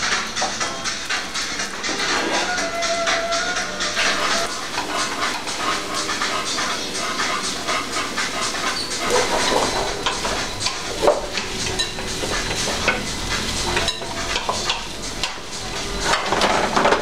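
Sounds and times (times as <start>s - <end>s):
utensil scraping and clinking on pan: 1.8s - 17.0s
pancakes sizzling in oil: 4.3s - 17.0s.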